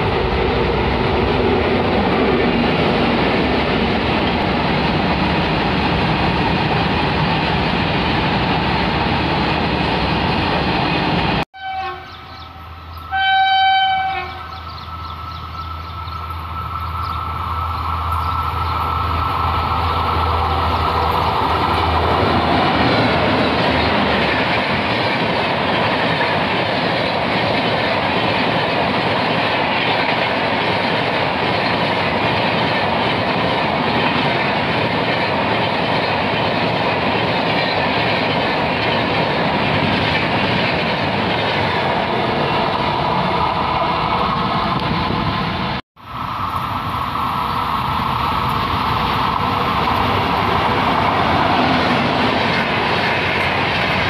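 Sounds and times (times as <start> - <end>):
express train rumble: 0.0 - 54.0
freight train rolling past: 0.0 - 54.0
locomotive horn: 11.6 - 12.3, 13.0 - 14.6.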